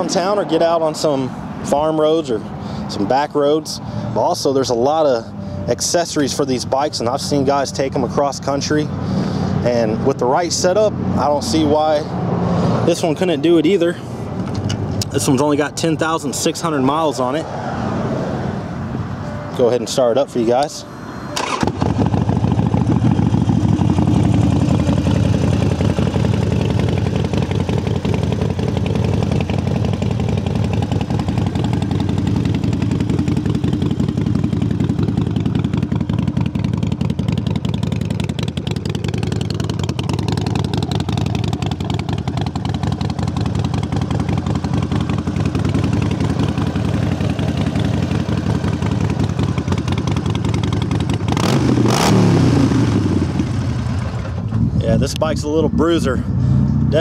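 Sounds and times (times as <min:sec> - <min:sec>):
motorcycle engine idling: 0:21.4 - 0:52.0, 0:52.6 - 0:56.4.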